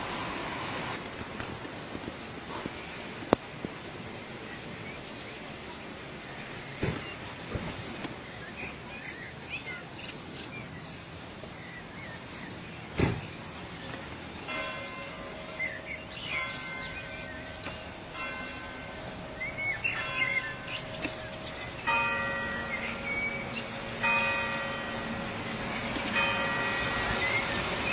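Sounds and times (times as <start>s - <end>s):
birds chirping: 0.9s - 27.9s
bells ringing: 14.4s - 27.9s.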